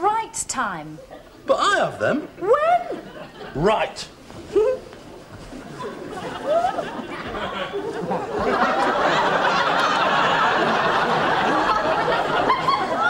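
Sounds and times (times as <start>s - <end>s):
audience laughing: 2.8s - 3.8s, 5.6s - 13.0s.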